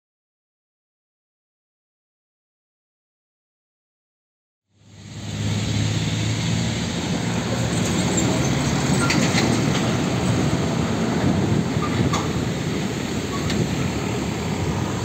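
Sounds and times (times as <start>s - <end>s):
diesel trucks driving past: 4.8s - 15.0s
tyre and road noise: 4.8s - 15.0s.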